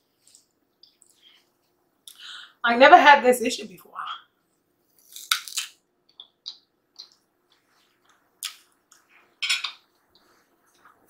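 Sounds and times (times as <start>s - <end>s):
knife and fork clinking on plate: 9.4s - 9.8s.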